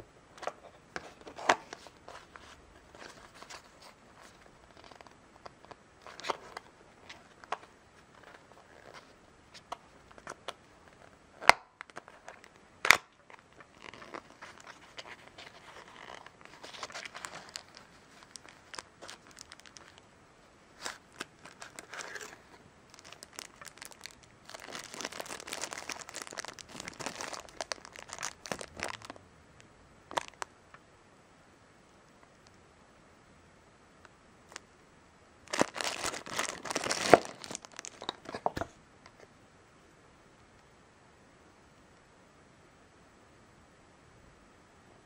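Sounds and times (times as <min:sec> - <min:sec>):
foil pouch crinkling: 0:12.1 - 0:20.0, 0:20.8 - 0:29.2, 0:35.5 - 0:38.6.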